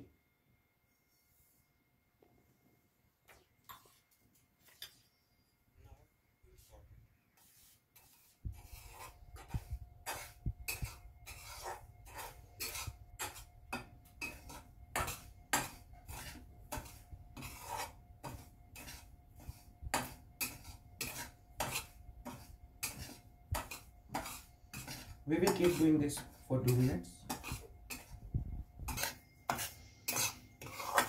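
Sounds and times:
spoon scraping metal pan: 7.4s - 31.0s.

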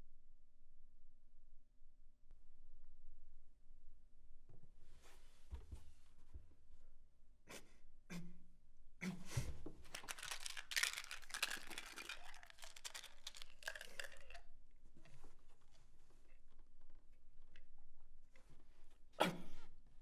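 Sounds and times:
wrapper crinkling and tearing: 9.8s - 14.4s.

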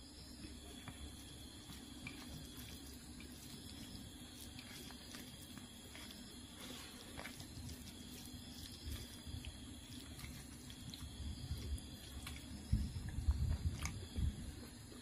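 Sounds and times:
wet squishing of food: 0.2s - 15.0s.

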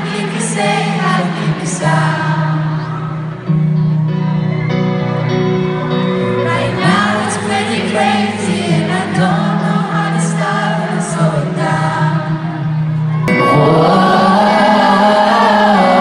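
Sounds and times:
crowd singing along: 0.0s - 3.9s, 6.0s - 16.0s
electric guitar: 0.0s - 16.0s
person singing: 6.2s - 16.0s.

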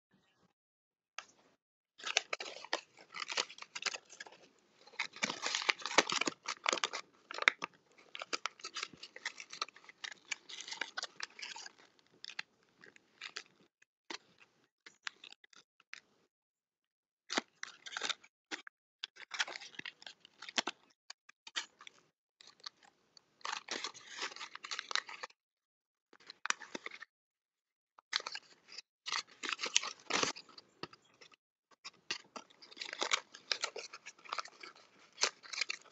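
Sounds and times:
paper crackling and rustling: 2.0s - 11.8s, 28.1s - 30.6s, 31.9s - 35.9s.

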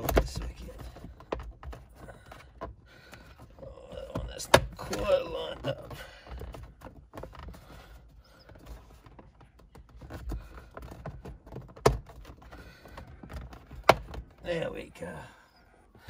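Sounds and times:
plastic trim clicks and knocks: 9.1s - 14.4s.

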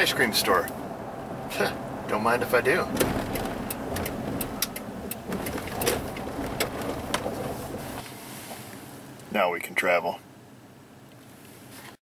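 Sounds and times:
vehicle rumbling: 0.0s - 12.0s
stones popping under tyres: 3.0s - 8.0s.

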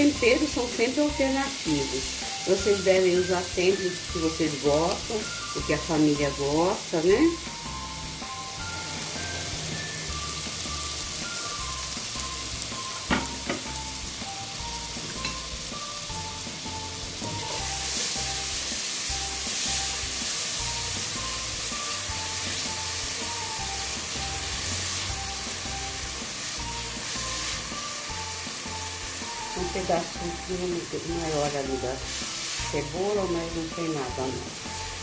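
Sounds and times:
background music: 0.0s - 35.0s
food sizzling in a pot: 0.0s - 35.0s.

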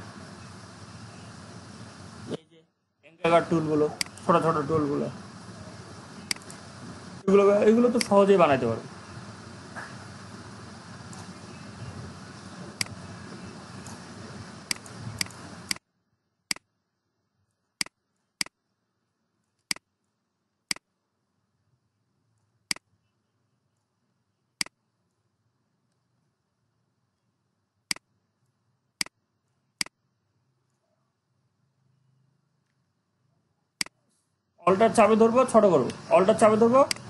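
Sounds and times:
low background hiss: 0.0s - 37.0s
computer mouse clicks: 6.2s - 6.6s, 14.7s - 15.8s.

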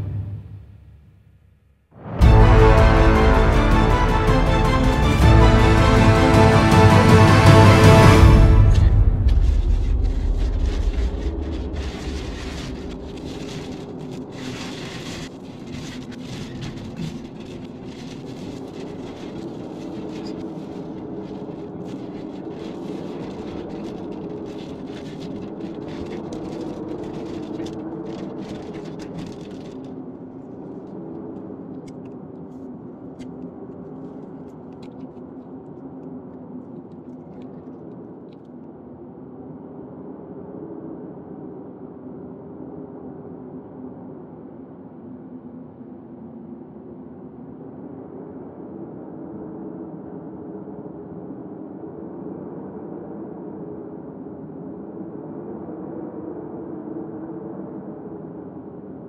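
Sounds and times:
music: 0.0s - 1.3s, 2.0s - 11.0s.

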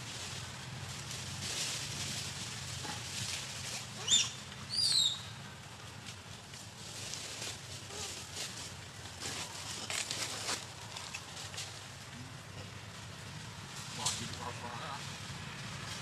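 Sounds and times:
rustling of dry leaves: 0.0s - 16.0s
high-pitched animal calls: 4.0s - 5.2s.

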